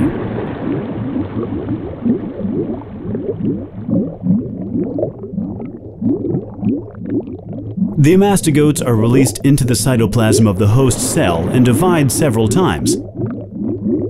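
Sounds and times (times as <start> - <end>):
bubbling wobbling blips: 0.0 - 14.0
low steady hum: 7.5 - 14.0.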